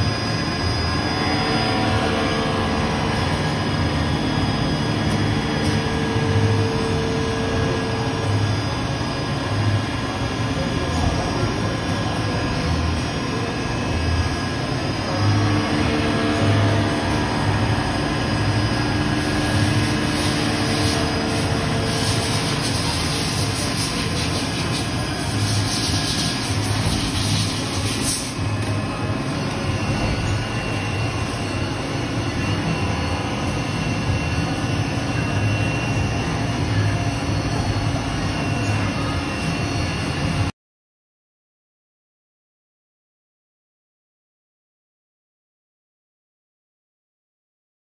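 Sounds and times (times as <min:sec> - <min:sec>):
lathe machine humming: 0:00.0 - 0:40.5
coolant spray hissing: 0:19.5 - 0:28.4.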